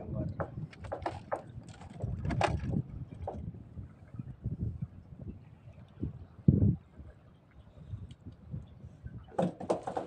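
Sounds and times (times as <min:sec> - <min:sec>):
water sloshing against boat hull: 0:00.0 - 0:10.0
wind rumbling on microphone: 0:00.0 - 0:10.0.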